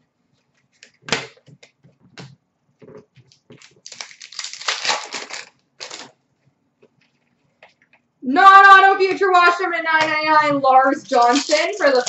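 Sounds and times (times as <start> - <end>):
trading cards rustling: 3.2 - 6.1, 11.0 - 12.0.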